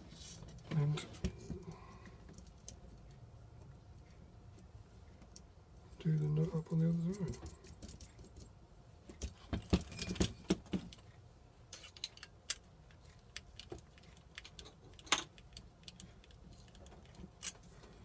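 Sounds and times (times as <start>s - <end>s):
metal bolts and nuts clinking: 9.6s - 11.0s, 11.7s - 12.7s, 13.5s - 17.7s.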